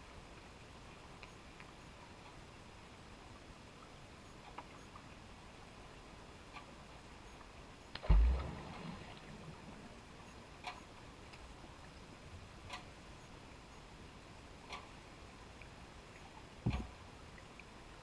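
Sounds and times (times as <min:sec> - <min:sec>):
heavy low underwater thump: 0:08.0 - 0:09.2.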